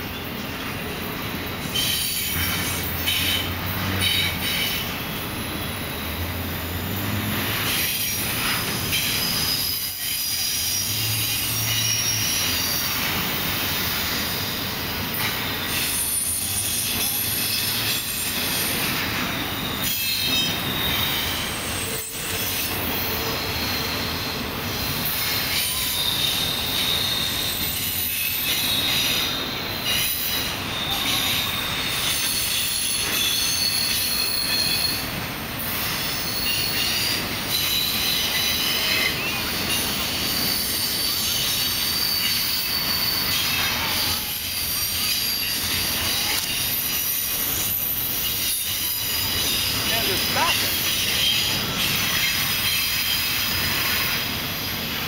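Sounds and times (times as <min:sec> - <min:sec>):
freight train rumbling on rails: 0:00.0 - 0:55.0
high-pitched wheel squeal: 0:01.6 - 0:06.4, 0:07.5 - 0:14.5, 0:15.3 - 0:54.4.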